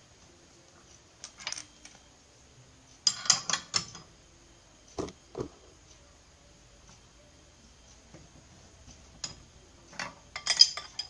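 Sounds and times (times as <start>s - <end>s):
steel tools clinking: 9.2s - 11.0s.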